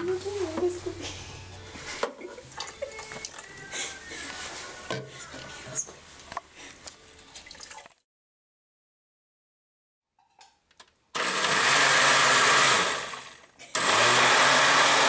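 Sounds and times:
liquid pouring from bottle: 7.2s - 8.0s.

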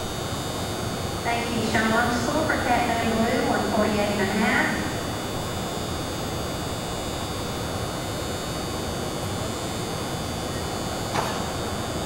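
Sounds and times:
arena background hiss and hum: 0.8s - 8.2s.

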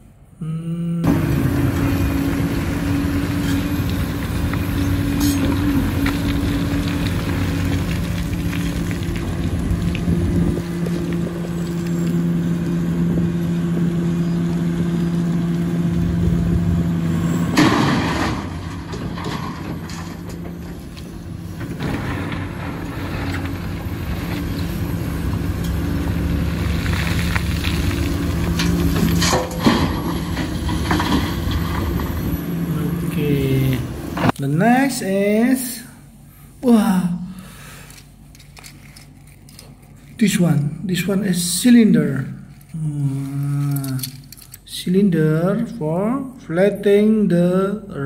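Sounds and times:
excavator diesel engine running: 1.0s - 34.4s
rock clattering: 17.5s - 24.8s, 26.6s - 32.4s.

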